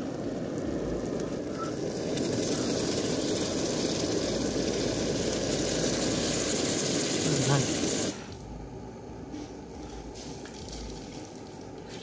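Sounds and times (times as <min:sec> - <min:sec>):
hot oil sizzling in a pan: 0:00.0 - 0:08.4.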